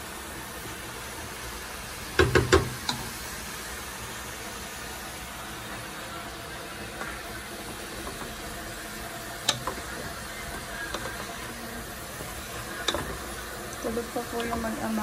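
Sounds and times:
chicken sizzling in a pot: 0:00.0 - 0:15.0
wooden spoon knocking on pot: 0:02.2 - 0:03.0.

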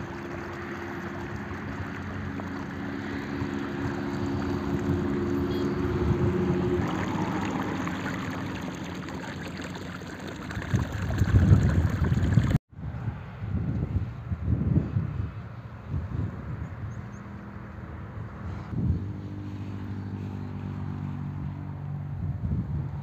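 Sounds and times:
wind buffeting microphone: 0:00.0 - 0:09.6, 0:10.4 - 0:17.2, 0:18.2 - 0:19.2, 0:22.0 - 0:23.0
water gushing into a ditch: 0:00.0 - 0:12.6.

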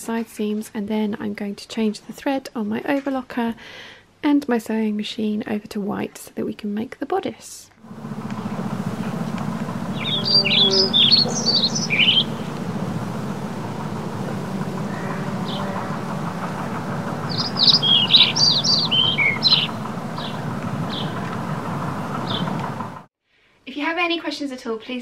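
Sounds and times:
low background rumble: 0:07.8 - 0:23.1
songbird chirping: 0:07.9 - 0:23.0.

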